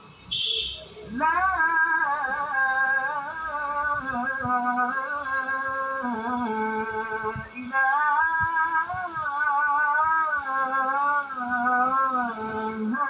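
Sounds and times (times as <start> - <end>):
muezzin chanting through tv speaker: 0.3 - 13.0.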